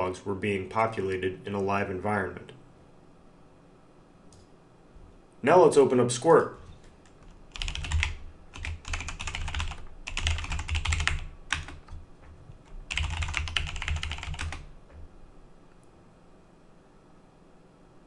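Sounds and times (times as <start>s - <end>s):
typing on computer keyboard: 7.0s - 12.0s, 12.6s - 14.7s.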